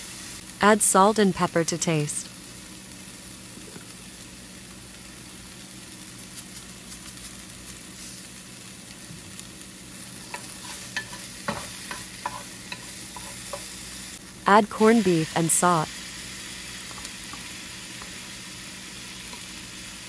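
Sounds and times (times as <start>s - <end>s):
vegetables sizzling in a pan: 0.0s - 20.0s
wooden spatula scraping a pan: 10.2s - 13.7s.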